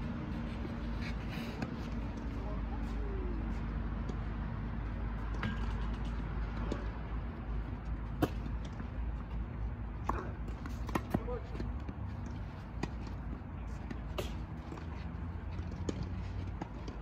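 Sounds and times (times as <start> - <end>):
low outdoor rumble: 0.0 - 17.0
tennis balls hit by rackets: 5.2 - 17.0.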